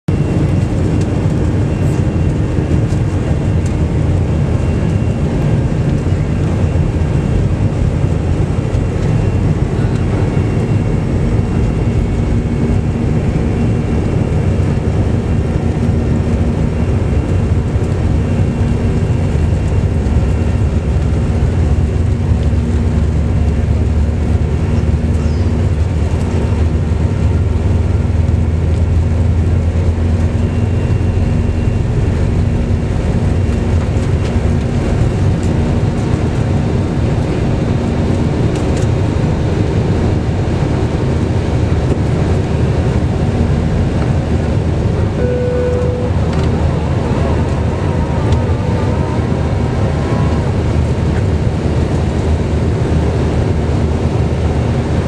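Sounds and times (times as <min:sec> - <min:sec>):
jet airliner rumble in cabin: 0:00.1 - 0:55.0
steady hum: 0:30.7 - 0:55.0.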